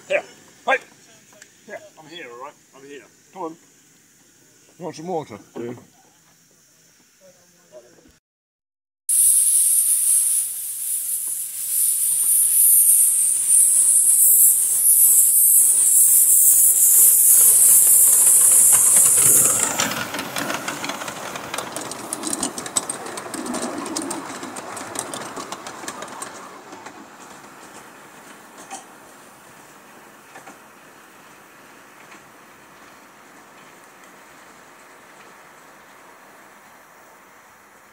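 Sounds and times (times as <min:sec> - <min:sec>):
steam locomotive hissing: 0:00.0 - 0:05.4, 0:09.1 - 0:37.9
wheels clicking over track: 0:09.2 - 0:37.9.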